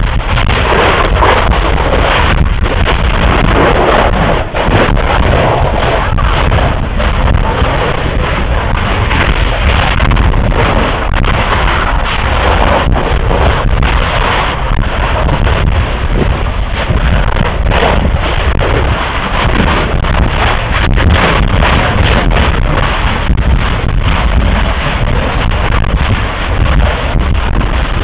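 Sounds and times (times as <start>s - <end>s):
deep roar of lava: 0.0s - 28.0s
sharp lava cracks: 0.0s - 28.0s.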